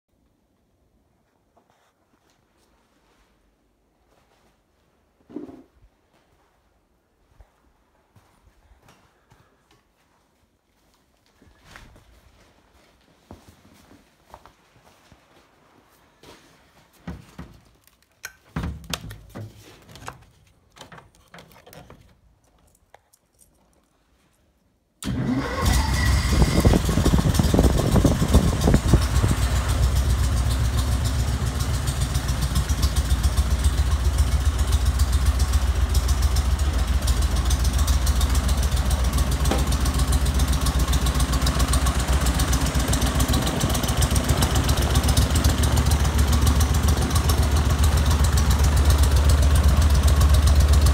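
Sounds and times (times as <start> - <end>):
propeller engine running: 26.3 - 50.9.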